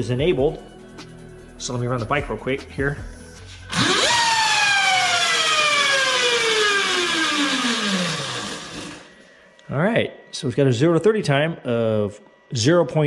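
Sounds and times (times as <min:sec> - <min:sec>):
electric motor whine: 0:03.7 - 0:09.3.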